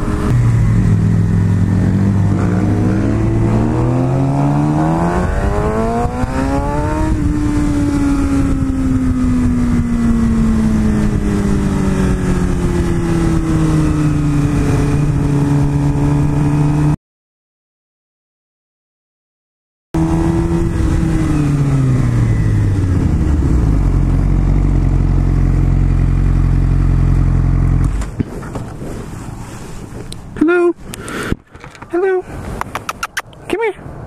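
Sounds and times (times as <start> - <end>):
wind rushing: 0.0 - 16.8
motorcycle engine accelerating: 0.0 - 17.0, 20.0 - 29.3.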